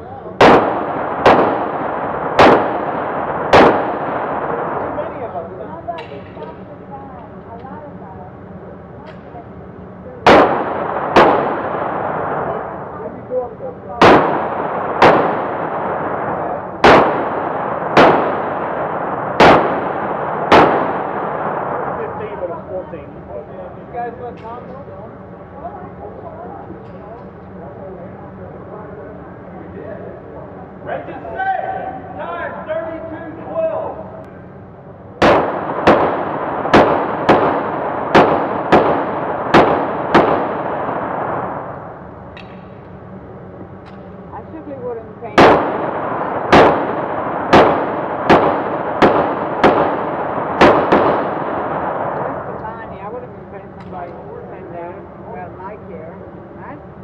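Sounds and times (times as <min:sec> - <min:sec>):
handgun shots echoing: 0:00.4 - 0:04.3, 0:10.3 - 0:12.0, 0:14.0 - 0:16.0, 0:16.8 - 0:21.4, 0:35.2 - 0:41.3, 0:45.4 - 0:51.7.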